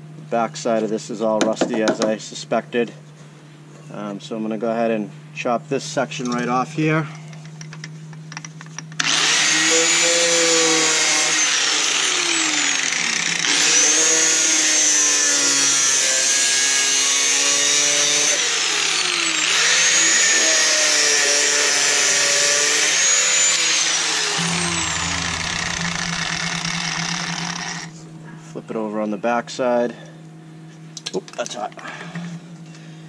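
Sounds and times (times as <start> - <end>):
angle grinder cutting sheet steel: 9.0 - 28.0.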